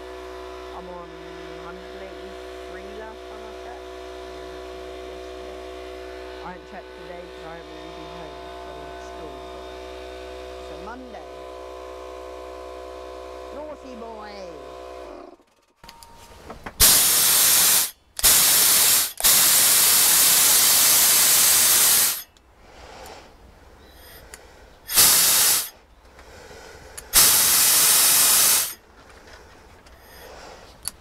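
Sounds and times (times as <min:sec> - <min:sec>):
compressed air hissing from nozzle: 0:16.8 - 0:31.0.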